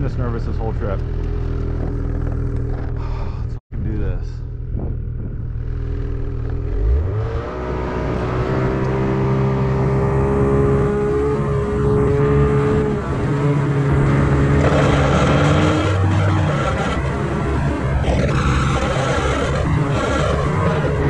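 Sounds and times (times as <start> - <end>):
snowmobile engine revving: 4.6 - 21.0.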